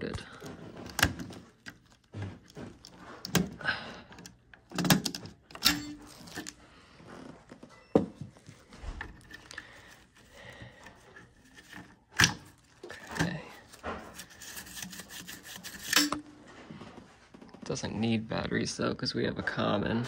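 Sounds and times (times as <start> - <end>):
sharp clicks and knocks: 0.0 - 6.6.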